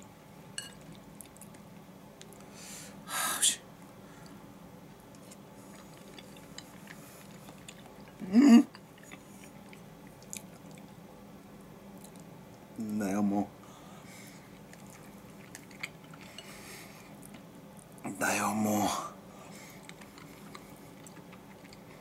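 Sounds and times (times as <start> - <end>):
quiet chewing: 0.6 - 2.5, 3.8 - 12.7, 14.0 - 18.0, 19.3 - 22.0.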